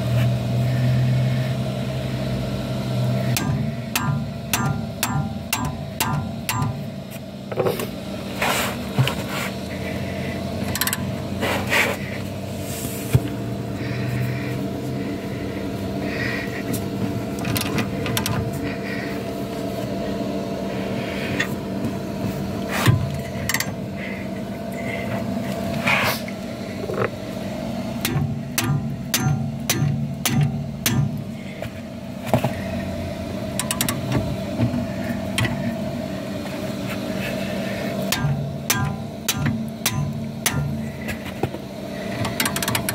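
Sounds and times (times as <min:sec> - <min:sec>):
low steady hum: 0:00.0 - 0:42.9
spanner knocking on metal bolt: 0:03.3 - 0:06.8, 0:10.7 - 0:11.1, 0:33.6 - 0:34.1, 0:42.2 - 0:42.9.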